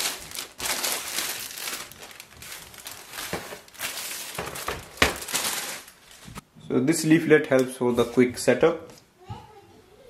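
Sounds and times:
plastic bag crinkling: 0.0s - 6.4s.

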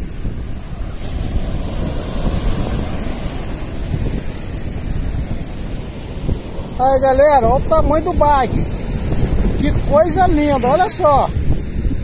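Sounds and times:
surf breaking on beach: 0.0s - 12.0s
wind buffeting microphone: 0.0s - 12.0s.

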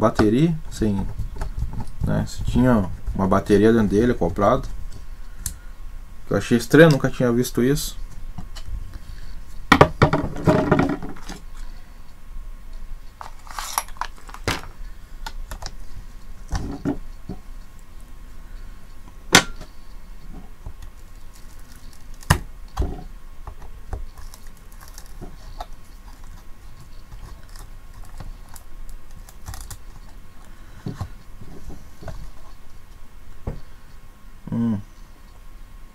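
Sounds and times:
tool rattling and knocking on plastic: 9.7s - 11.4s.

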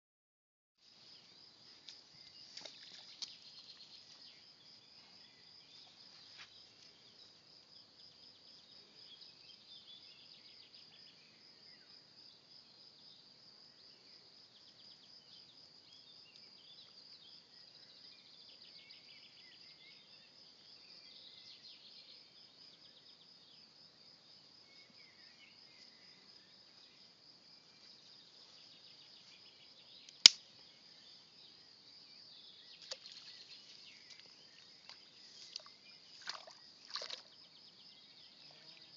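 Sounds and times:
insects trilling: 24.3s - 38.9s
sharp click: 30.1s - 30.4s.

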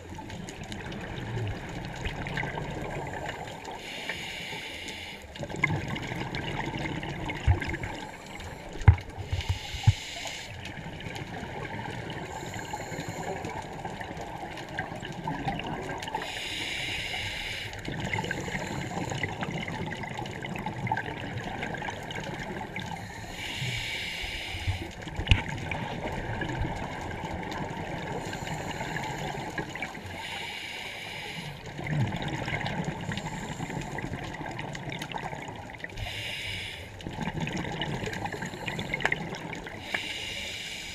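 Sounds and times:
water bubbling and gurgling: 0.0s - 40.9s
diver breathing through regulator: 3.8s - 5.4s, 7.9s - 10.7s, 12.2s - 13.6s, 16.2s - 19.5s, 22.9s - 25.0s, 28.0s - 31.7s, 32.9s - 34.1s, 36.0s - 37.1s, 39.8s - 40.9s.

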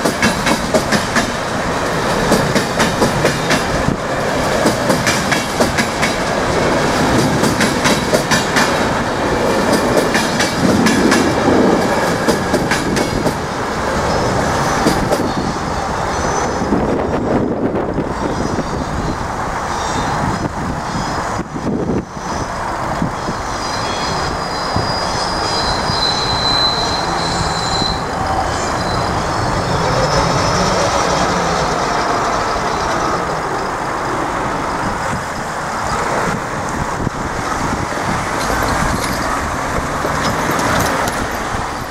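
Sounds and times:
train rumbling past: 0.0s - 41.9s
metallic wheel squeal: 23.6s - 33.7s.

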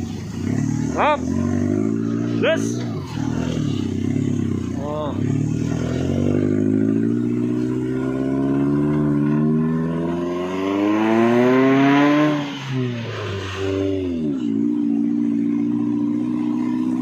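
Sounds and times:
vehicle engine revving: 0.0s - 17.0s.

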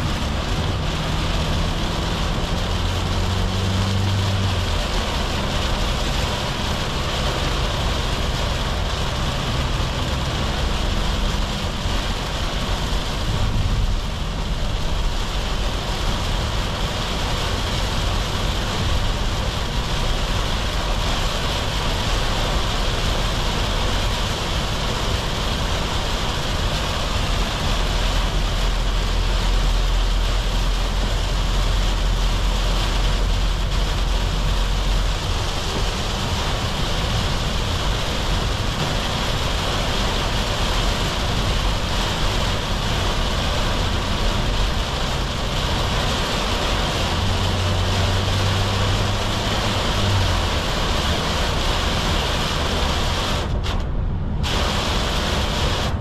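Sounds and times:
diesel engine humming: 0.0s - 56.0s
rain on car body: 0.0s - 56.0s
tyres hissing on wet road: 0.0s - 56.0s.

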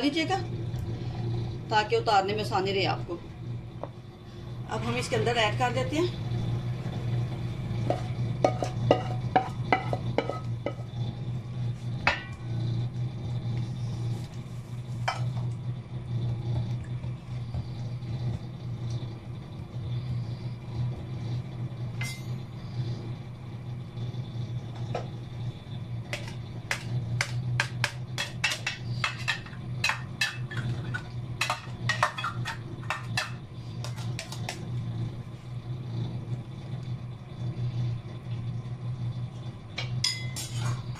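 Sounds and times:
steady low hum: 0.0s - 40.9s
spoon scraping and tapping metal tray: 7.8s - 10.8s, 26.1s - 34.6s.

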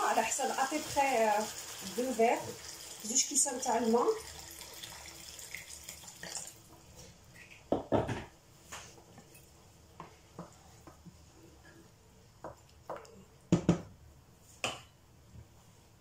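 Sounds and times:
water pouring into pan: 0.0s - 6.7s
kitchenware knocks: 7.7s - 8.3s.

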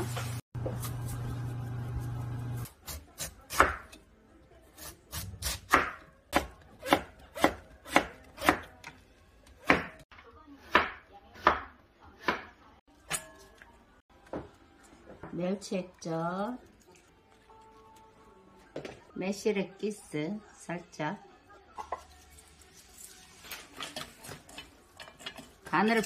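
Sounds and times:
knife chopping on wooden board: 2.9s - 4.0s, 5.4s - 8.7s.

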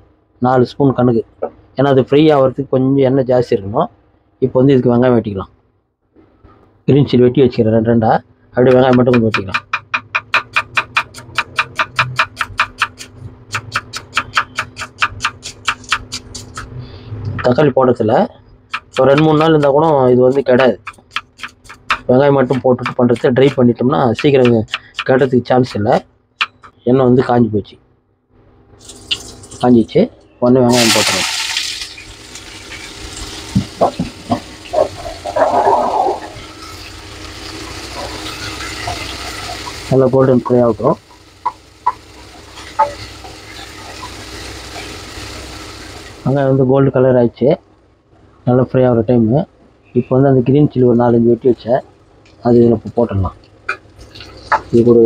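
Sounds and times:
knife chopping on wooden board: 8.7s - 16.7s, 18.7s - 25.8s.

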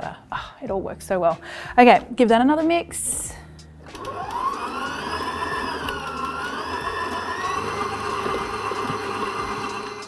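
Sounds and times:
stand mixer motor whine: 3.9s - 10.0s.

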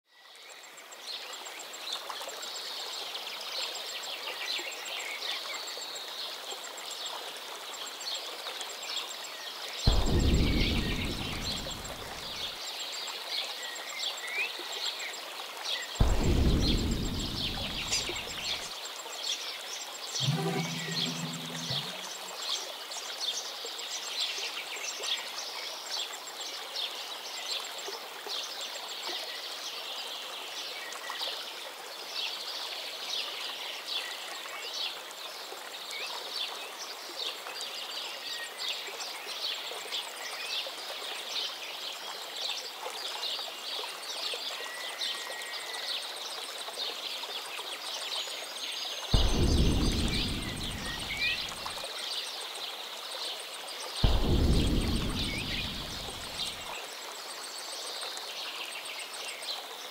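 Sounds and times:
running water: 16.0s - 18.7s, 49.2s - 51.8s, 54.0s - 56.7s.

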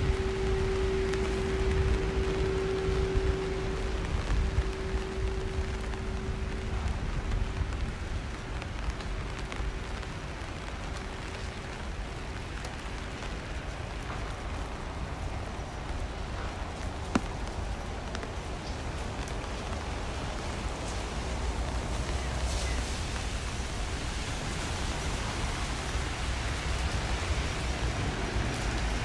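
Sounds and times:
low rumble: 0.0s - 9.1s
faint steady hum: 0.0s - 22.4s
rain falling on wet street: 0.0s - 29.0s.

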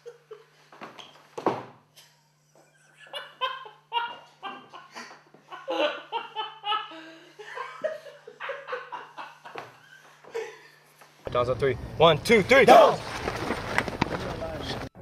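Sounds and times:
hearty laughter: 2.0s - 10.9s.

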